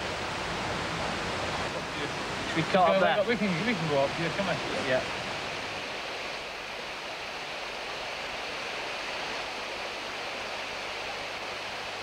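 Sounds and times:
stream rushing: 0:00.0 - 0:12.0.

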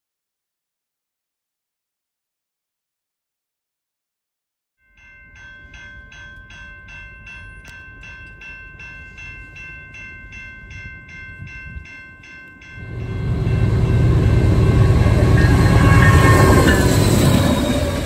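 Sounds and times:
crossing bell ringing: 0:04.8 - 0:18.0
freight locomotive rumble: 0:12.6 - 0:18.0.

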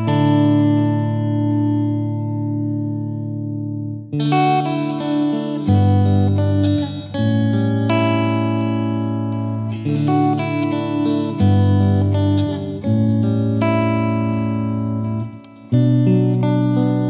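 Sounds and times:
plucked guitar music: 0:00.0 - 0:17.0.

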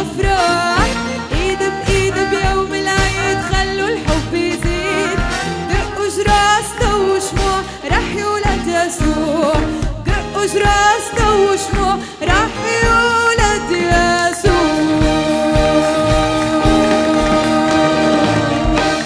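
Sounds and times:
accordion: 0:00.0 - 0:19.0
steady drum beat: 0:00.0 - 0:19.0
woman singing: 0:00.0 - 0:19.0.

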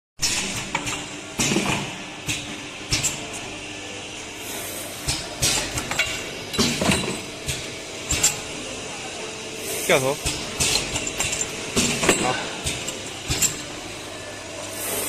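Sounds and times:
machine running with steady hiss: 0:00.2 - 0:15.0
metallic clanks of tubes: 0:10.2 - 0:13.7.

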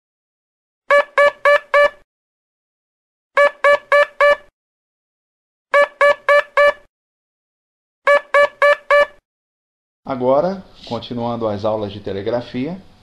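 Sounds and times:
morse code beeps: 0:00.9 - 0:02.0, 0:03.4 - 0:04.5, 0:05.8 - 0:06.9, 0:08.1 - 0:09.2.

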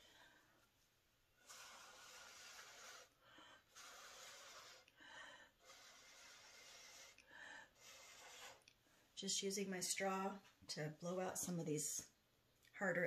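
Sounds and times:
breath blown through a straw: 0:01.4 - 0:08.7.

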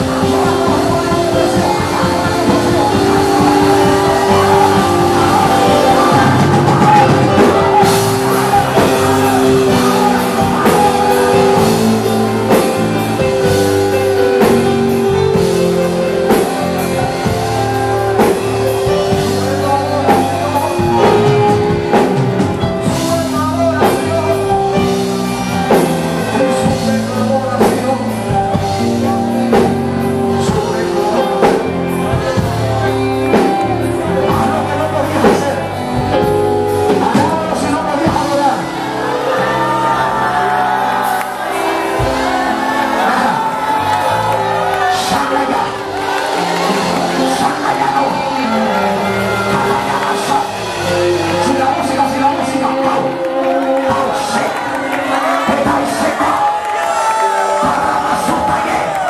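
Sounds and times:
person singing: 0:00.0 - 0:59.0
praise band music: 0:00.0 - 0:59.0.

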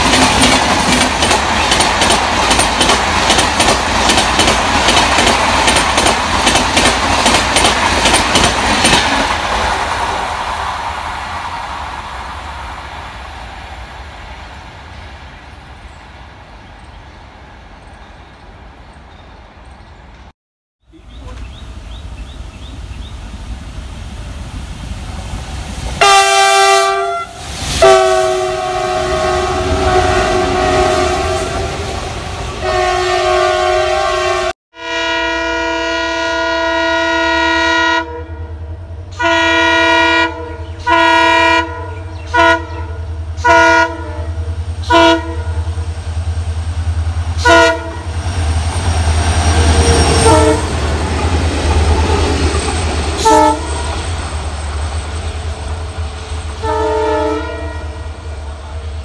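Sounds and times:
diesel locomotive engine rumble: 0:20.9 - 0:59.0
locomotive chord horn blasts: 0:26.0 - 0:31.9, 0:32.6 - 0:45.7, 0:47.4 - 0:48.1, 0:49.5 - 0:50.8, 0:53.2 - 0:54.0, 0:56.6 - 0:58.3.

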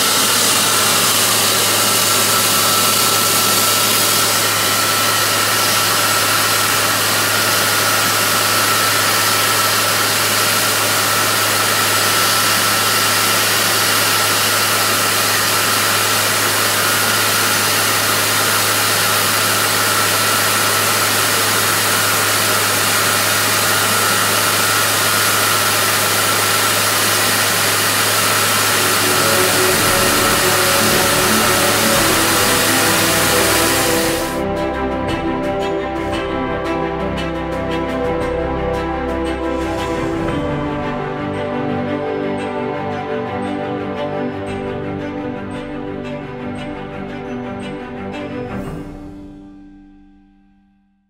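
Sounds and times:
music: 0:00.0 - 0:12.7, 0:28.4 - 0:51.0
drill rig running: 0:00.0 - 0:42.5
thin steady whine: 0:00.0 - 0:42.7.

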